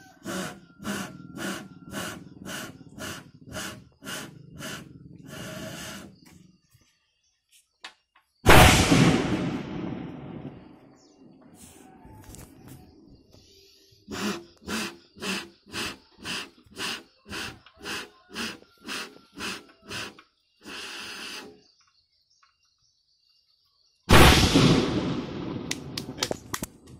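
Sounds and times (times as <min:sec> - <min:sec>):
person blowing short puffs: 0:00.0 - 0:06.2, 0:14.1 - 0:21.5
bamboo cannon boom: 0:08.5 - 0:10.8, 0:24.1 - 0:26.3.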